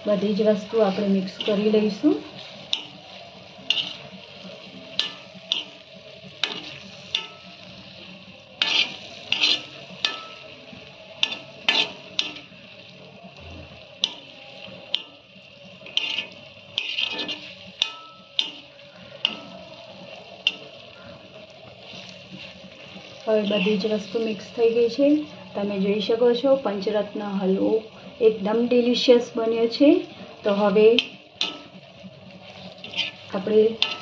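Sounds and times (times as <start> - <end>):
faint sizzle: 0.0 - 34.0
spatula scraping on iron pan: 0.5 - 21.2, 21.8 - 24.3, 31.0 - 34.0.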